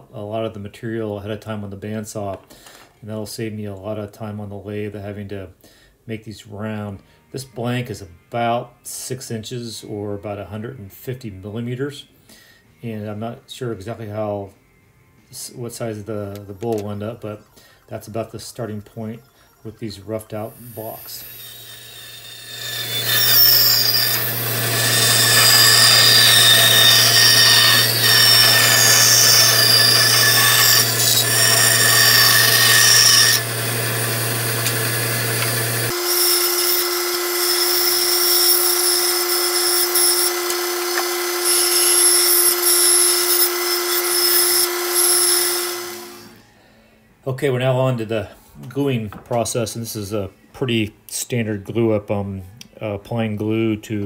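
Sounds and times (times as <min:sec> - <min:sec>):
bandsaw cutting wood: 0:20.3 - 0:46.4
bandsaw motor hum: 0:20.6 - 0:46.4.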